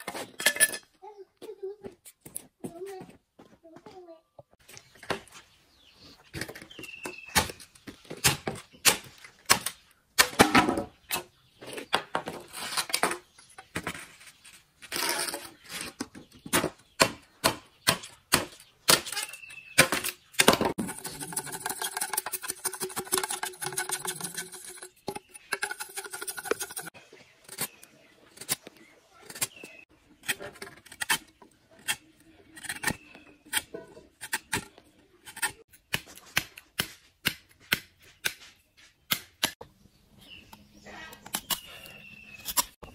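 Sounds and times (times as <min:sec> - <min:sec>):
knife chopping bamboo: 0:35.3 - 0:38.5.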